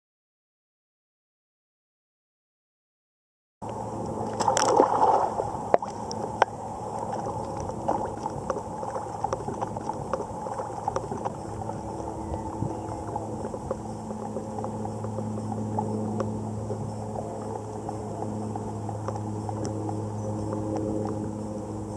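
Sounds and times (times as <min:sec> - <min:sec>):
steady low hum: 0:03.6 - 0:21.9
pool water lapping and sloshing: 0:04.1 - 0:21.9
splashing gurgle: 0:04.2 - 0:21.2.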